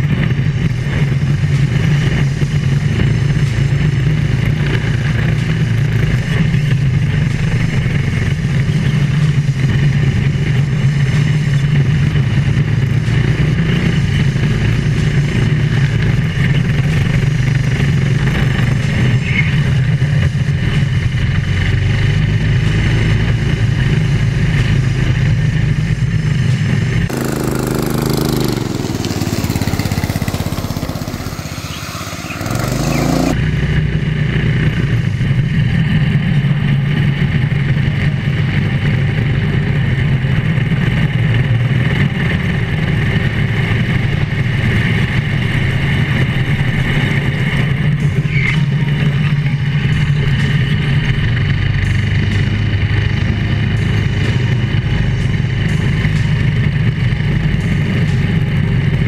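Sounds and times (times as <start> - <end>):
small kart engine droning: 27.1 - 33.9.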